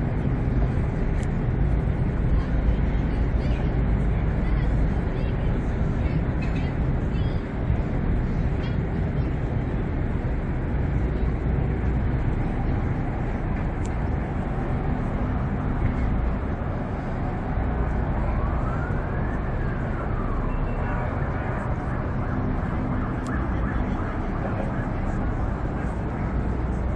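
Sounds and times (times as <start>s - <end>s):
city traffic rumble: 0.0s - 26.9s
siren wail: 17.1s - 26.9s.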